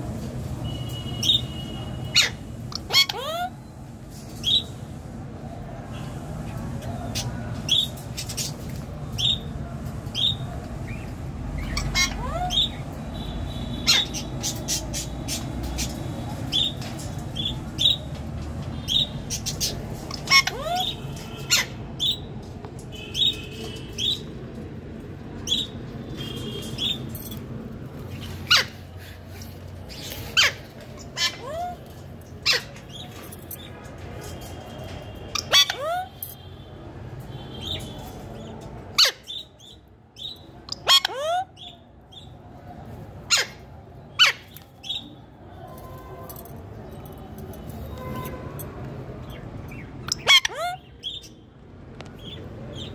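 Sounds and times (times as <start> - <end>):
parrot chirping and squawking: 2.1 - 3.7, 11.6 - 12.9, 13.6 - 16.8, 18.9 - 22.3, 26.7 - 33.2, 35.3 - 36.2, 38.9 - 42.3, 43.2 - 45.0, 49.3 - 51.4
loud parrot calls: 50.0 - 51.2.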